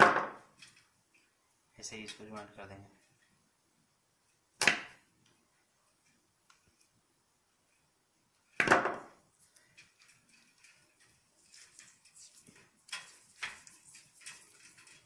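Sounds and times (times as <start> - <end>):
insulating tape peeling: 9.4 - 15.0.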